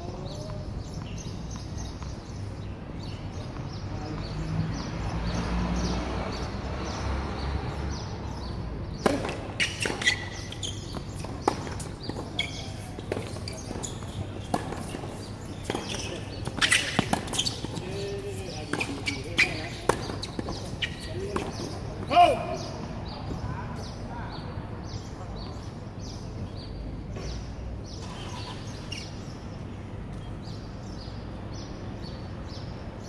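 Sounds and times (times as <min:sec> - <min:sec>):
tennis racket hits and ball bounces: 0:09.0 - 0:21.8.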